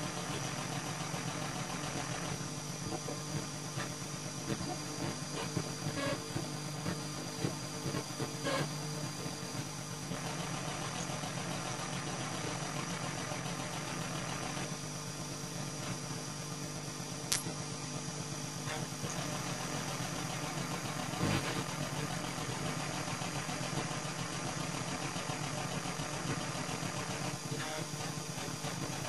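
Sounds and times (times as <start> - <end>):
sharp click: 17.3 - 17.6.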